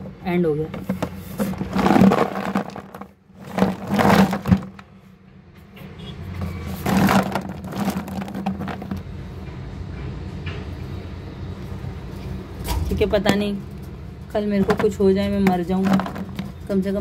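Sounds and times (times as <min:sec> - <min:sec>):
clay chunks clattering in bucket: 0:00.6 - 0:04.9, 0:06.7 - 0:09.1, 0:14.5 - 0:17.0.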